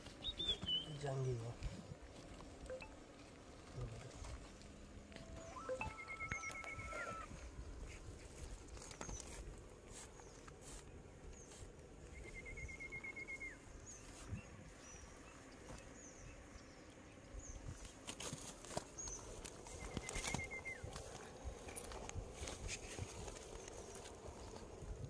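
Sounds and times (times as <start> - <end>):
brief high trill: 5.2 - 7.3
short high chirps: 5.2 - 7.3.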